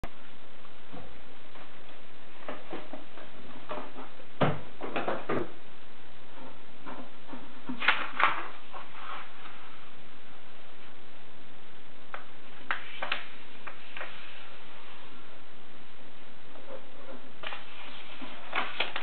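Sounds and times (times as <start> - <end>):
background hiss: 0.0 - 19.0
paper rustling and folding: 7.7 - 9.9, 12.5 - 15.1, 17.4 - 19.0.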